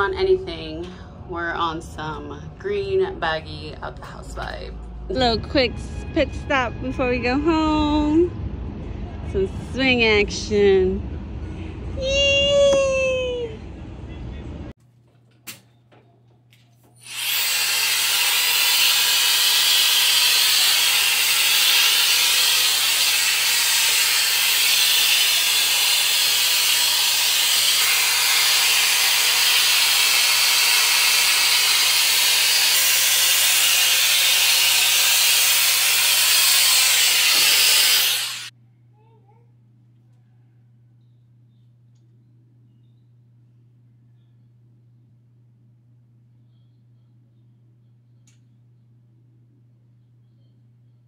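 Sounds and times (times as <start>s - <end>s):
hot-air brush blowing: 17.0s - 38.5s.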